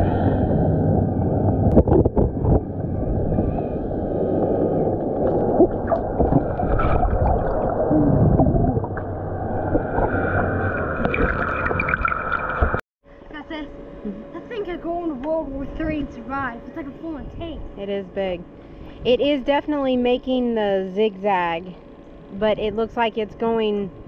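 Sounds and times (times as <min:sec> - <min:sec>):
water churning: 0:00.0 - 0:12.8
muffled motor hum underwater: 0:00.0 - 0:24.0.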